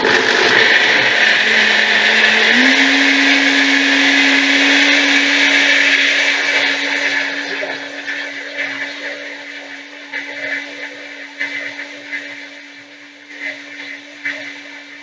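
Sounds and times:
blender motor running: 0:00.0 - 0:08.9.

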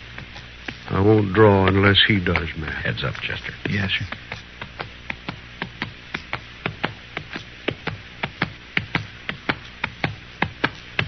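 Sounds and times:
horse hooves clip-clopping: 0:02.3 - 0:11.0.

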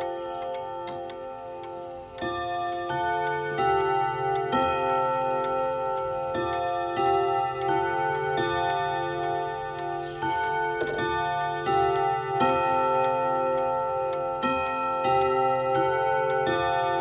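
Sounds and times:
clock chime melody on gong rods: 0:00.0 - 0:17.0
clock ticking: 0:00.0 - 0:17.0.

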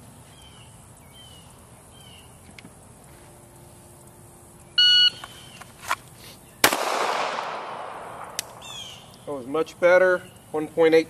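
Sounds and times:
shot timer beep: 0:04.8 - 0:05.2.

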